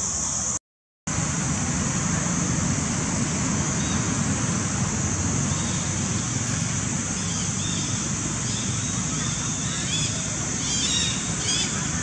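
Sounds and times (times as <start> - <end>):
low rumble of distant traffic: 0.0 - 12.0
high-pitched insect drone: 3.6 - 12.0.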